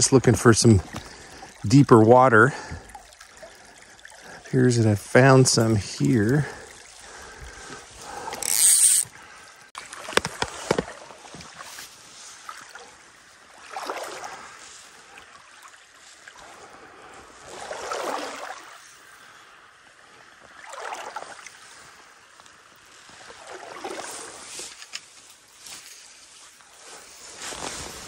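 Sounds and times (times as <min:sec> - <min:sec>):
water sloshing: 0:00.0 - 0:19.0, 0:20.4 - 0:22.1, 0:23.0 - 0:24.9
creek running: 0:00.0 - 0:28.0.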